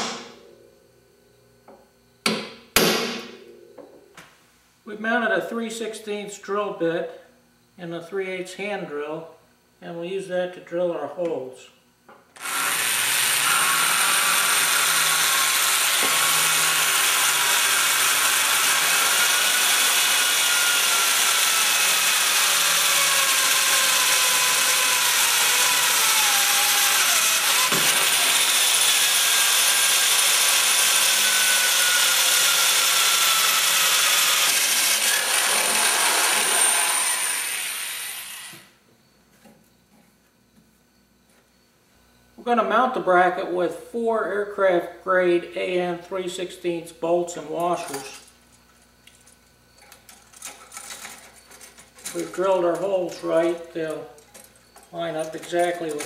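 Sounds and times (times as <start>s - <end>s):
electric drill motor whine: 12.4s - 38.8s.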